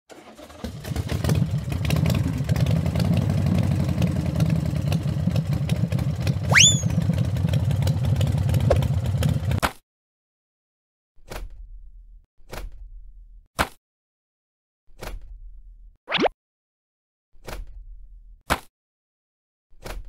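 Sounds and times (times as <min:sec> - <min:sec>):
short rising whistle-like chirp: 0:06.5 - 0:07.0.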